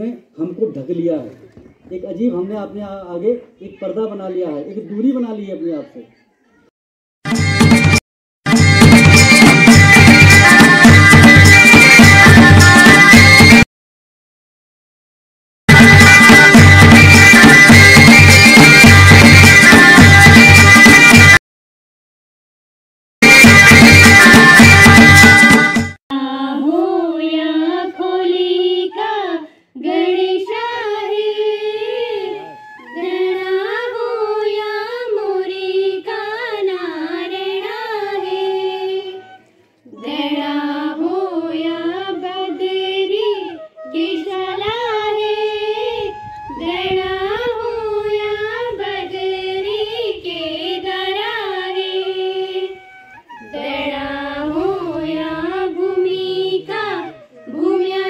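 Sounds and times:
girls singing in unison: 0:26.1 - 0:52.8, 0:53.4 - 0:58.0.

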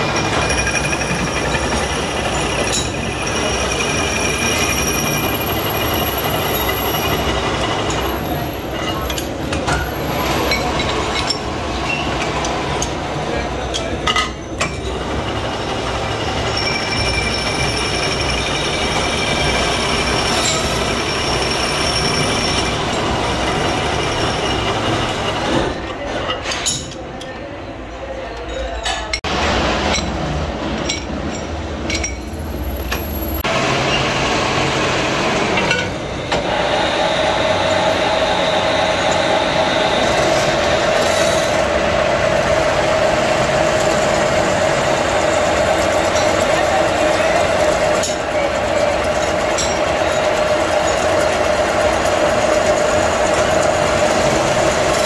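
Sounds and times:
cutting tool squealing: 0:00.0 - 0:09.1, 0:16.4 - 0:25.6
metal lathe running: 0:00.0 - 0:14.0, 0:14.7 - 0:25.9, 0:29.3 - 0:55.0.

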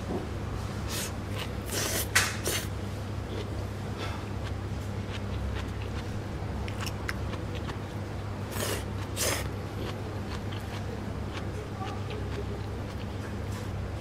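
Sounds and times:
steady low hum: 0:00.0 - 0:14.0
person slurping noodles: 0:00.9 - 0:02.7, 0:08.5 - 0:09.5.

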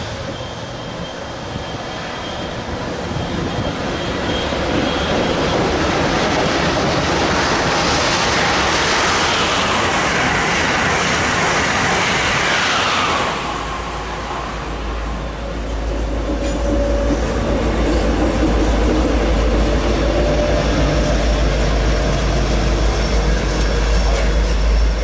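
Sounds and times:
falling train whine: 0:00.0 - 0:25.0
train rushing past: 0:00.0 - 0:25.0.

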